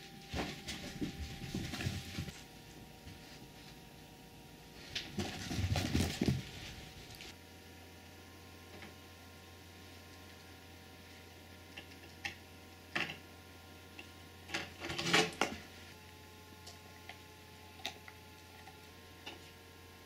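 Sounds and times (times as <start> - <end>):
steady low hum: 0.0 - 20.0
animals eating from dish: 11.5 - 13.2, 16.5 - 19.6.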